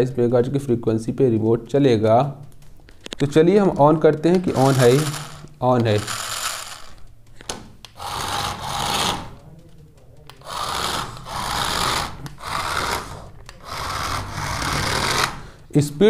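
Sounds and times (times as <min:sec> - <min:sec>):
toy car electric motor whirring: 0:04.4 - 0:07.0, 0:08.0 - 0:09.4, 0:10.4 - 0:15.4.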